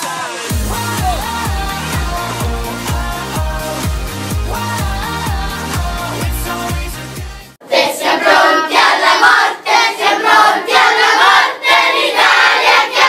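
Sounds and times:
children chanting: 7.6s - 13.0s.

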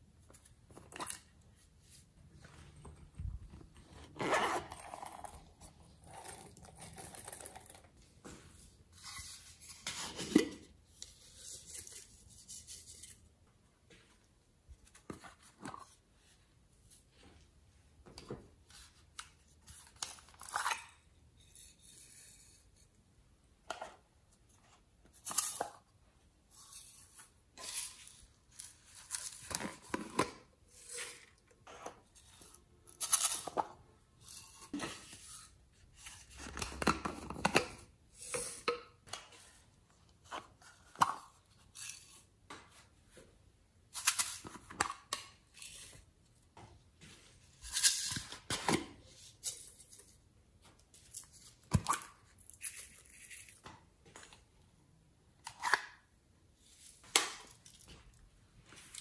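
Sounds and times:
plastic containers rustling and clicking: 36.2s - 41.6s.

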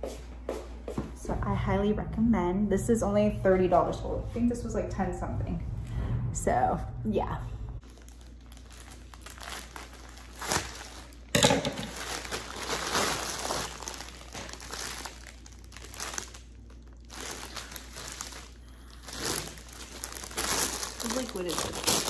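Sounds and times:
plastic packaging crinkling: 7.8s - 22.0s
sharp plastic crackle: 7.8s - 22.0s.

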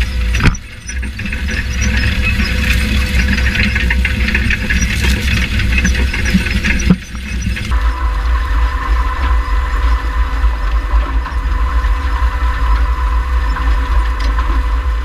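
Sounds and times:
constant high whine: 0.0s - 15.0s
planter rumbling and rattling: 0.0s - 15.0s.

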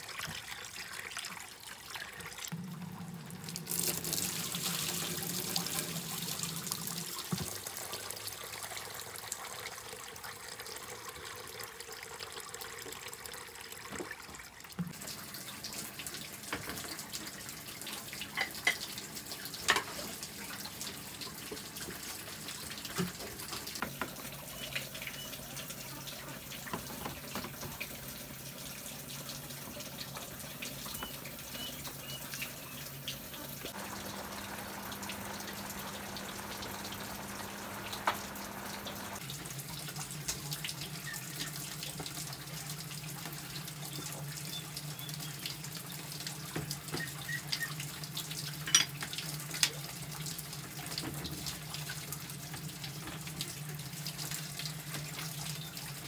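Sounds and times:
water splashing into a metal pot: 0.0s - 9.9s.

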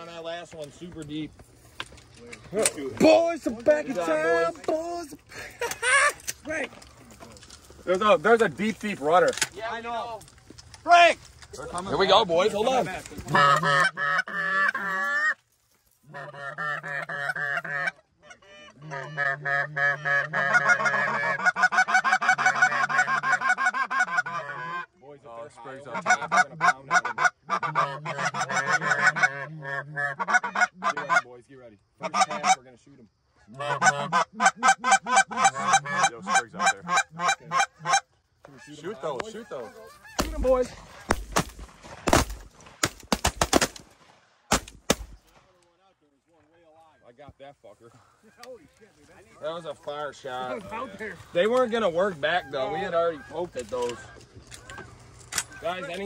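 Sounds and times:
goose calls honking and clucking: 12.6s - 15.4s, 16.0s - 24.9s, 25.7s - 31.3s, 32.0s - 32.6s, 33.5s - 41.2s, 50.4s - 56.0s.

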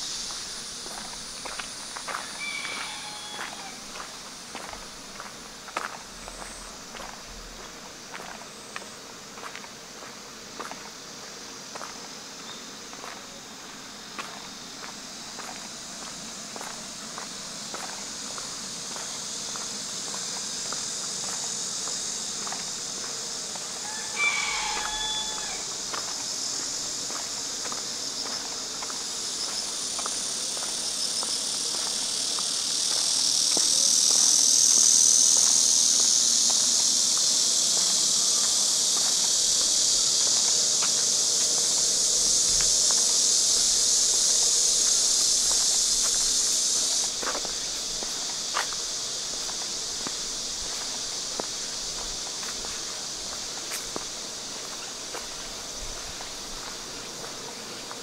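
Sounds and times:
high-pitched insect drone: 0.0s - 58.0s
footsteps ticking: 0.2s - 10.8s
brief animal call: 2.4s - 3.8s, 23.9s - 25.6s.

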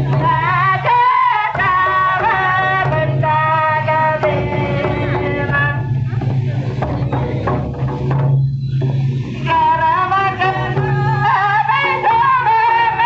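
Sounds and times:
women singing: 0.0s - 5.9s, 9.4s - 13.0s
drums playing: 0.0s - 13.0s.

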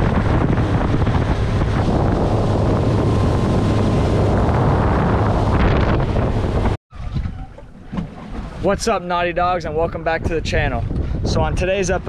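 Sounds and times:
boat engine drone: 0.0s - 9.0s
wind rushing over microphone: 0.0s - 12.0s.

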